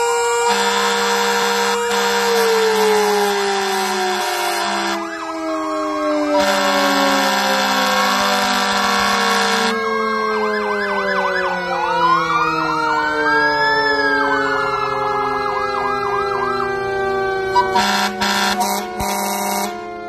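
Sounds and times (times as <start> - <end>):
air horn blasts: 0.0 - 5.1, 6.4 - 9.8, 17.6 - 19.8
fire engine sirens yelping and wailing: 0.0 - 20.0
low siren tone falling in pitch: 0.0 - 20.0.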